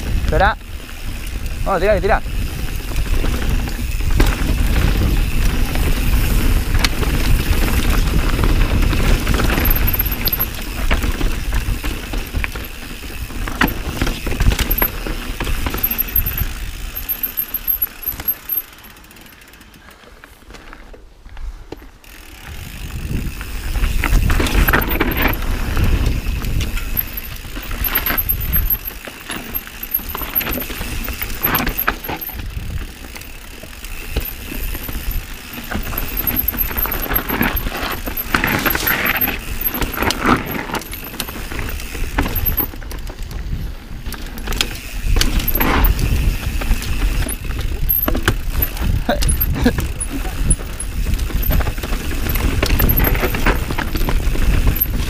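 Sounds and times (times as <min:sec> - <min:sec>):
wind rumble on microphone: 0:00.0 - 0:17.1, 0:22.4 - 0:28.9, 0:32.3 - 0:33.1, 0:41.4 - 0:55.0
bike tyres rumbling over rocks: 0:00.0 - 0:55.0
chain and frame rattling: 0:07.2 - 0:19.0, 0:24.0 - 0:43.4, 0:44.2 - 0:55.0.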